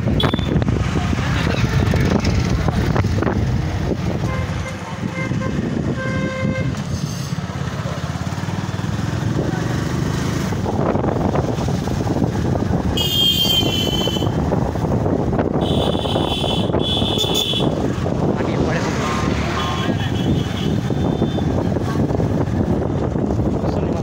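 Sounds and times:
motorcycle engine running: 0:00.0 - 0:06.8
wind noise: 0:00.0 - 0:07.2, 0:08.8 - 0:24.0
high-pitched vehicle horn: 0:00.2 - 0:00.6, 0:04.2 - 0:06.8, 0:13.0 - 0:14.4, 0:15.6 - 0:17.8.

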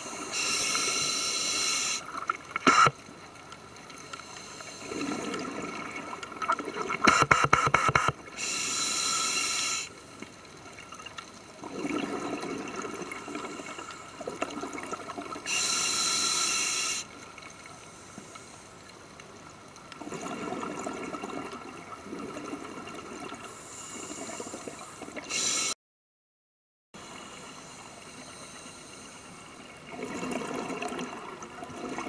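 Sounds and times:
regulator inhalation hiss: 0:00.0 - 0:02.0, 0:08.4 - 0:10.0, 0:15.5 - 0:17.1, 0:23.5 - 0:25.8
underwater bubbling exhalations: 0:11.6 - 0:15.4, 0:29.9 - 0:32.0.

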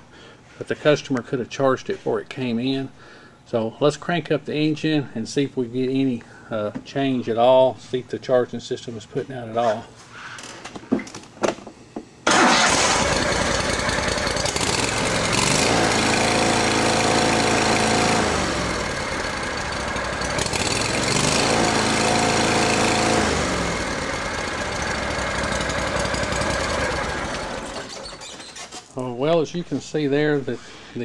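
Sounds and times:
lawn mower engine running: 0:12.3 - 0:28.9.

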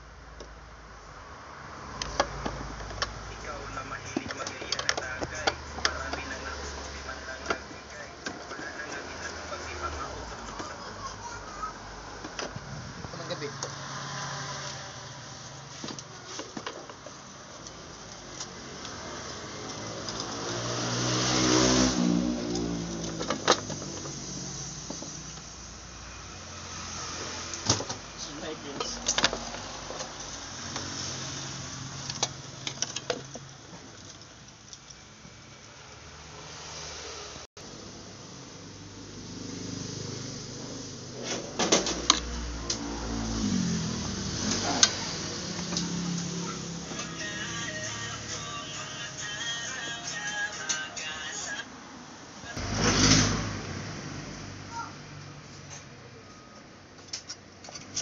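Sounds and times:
motor vehicle passing by: 0:01.4 - 0:16.4, 0:17.8 - 0:32.8, 0:35.4 - 0:47.6, 0:51.7 - 0:56.0
clicks and knocks of parts handled: 0:28.8 - 0:30.9, 0:32.0 - 0:35.0, 0:57.0 - 0:58.0.

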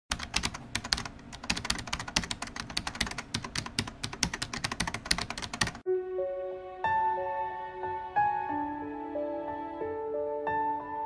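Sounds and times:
rapid sharp clicking: 0:00.1 - 0:05.8
soft music: 0:05.6 - 0:11.0.

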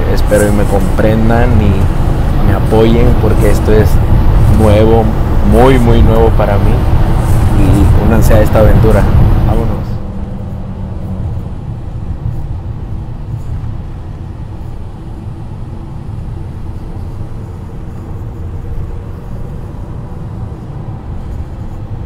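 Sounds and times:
engine and road noise rumble: 0:00.0 - 0:22.0.

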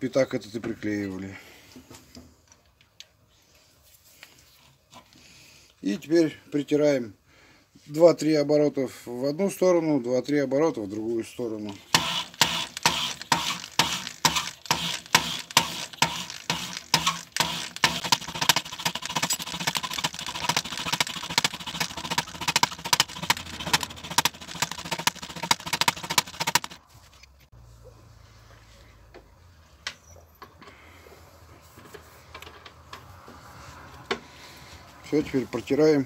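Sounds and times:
gritty metal scraping strokes: 0:11.8 - 0:22.4.

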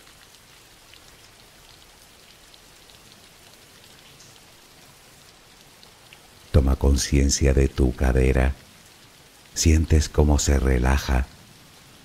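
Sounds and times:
rain hissing: 0:00.0 - 0:12.0
raindrops ticking: 0:00.0 - 0:12.0.

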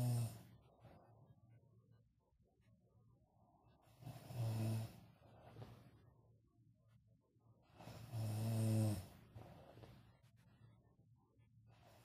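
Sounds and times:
person snoring: 0:04.0 - 0:05.0, 0:07.9 - 0:09.2.

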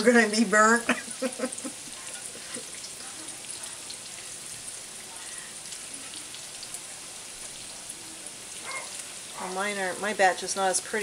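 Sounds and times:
oil sizzling in a skillet: 0:00.0 - 0:11.0
small crackles and pops: 0:02.0 - 0:09.4.

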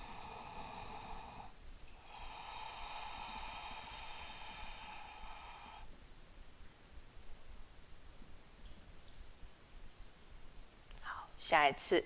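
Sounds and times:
person breathing: 0:00.0 - 0:06.0.

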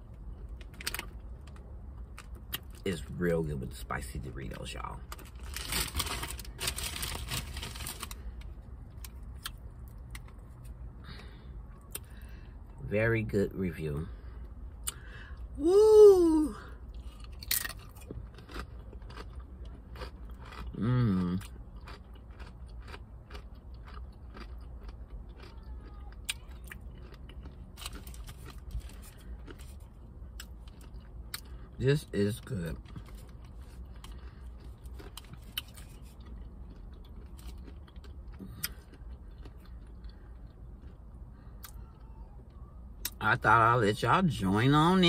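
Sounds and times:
person chewing crunchy chips: 0:04.0 - 0:12.8, 0:14.7 - 0:41.8.

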